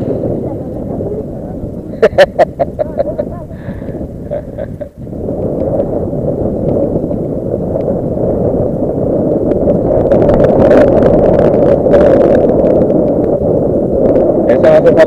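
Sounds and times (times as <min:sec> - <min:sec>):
wind buffeting microphone: 0:00.0 - 0:15.0
faint clicks: 0:12.5 - 0:13.4.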